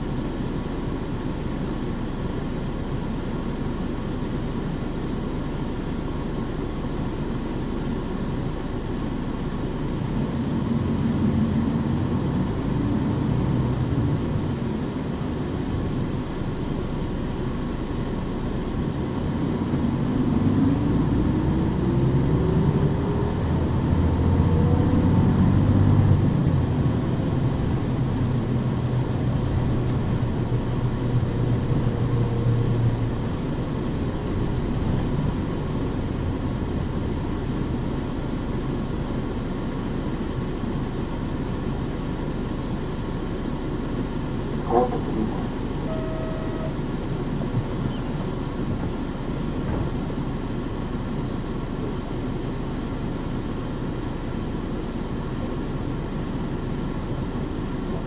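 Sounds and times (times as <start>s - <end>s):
bus engine accelerating: 0.0s - 58.0s.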